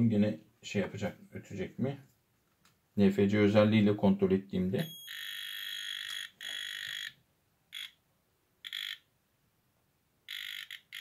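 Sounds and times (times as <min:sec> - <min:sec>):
voltage tester beeping: 0:04.8 - 0:08.0, 0:08.6 - 0:09.1, 0:10.3 - 0:11.0.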